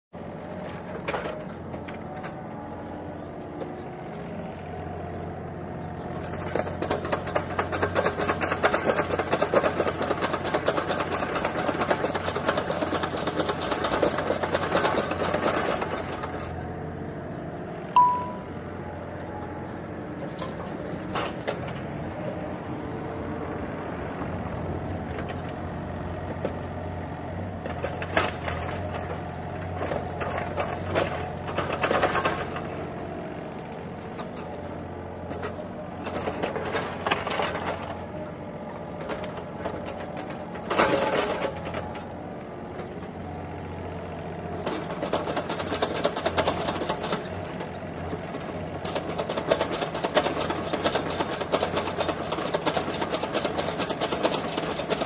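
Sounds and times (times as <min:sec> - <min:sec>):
single clear ding: 0:18.0 - 0:18.6.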